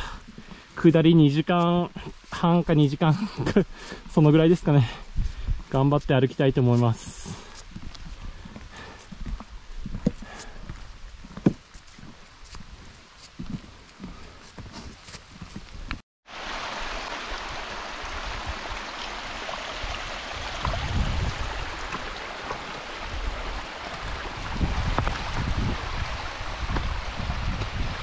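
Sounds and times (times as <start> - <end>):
stream water rushing: 16.3 - 28.0.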